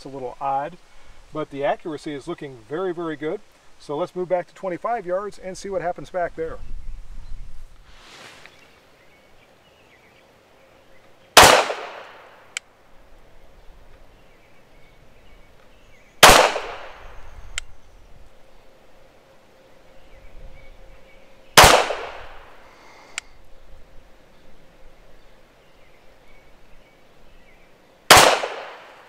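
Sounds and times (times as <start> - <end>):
pistol shots: 11.4 - 12.3, 16.2 - 17.1, 21.6 - 22.4, 28.1 - 29.0
faint sharp click: 17.5 - 17.7, 23.1 - 23.3.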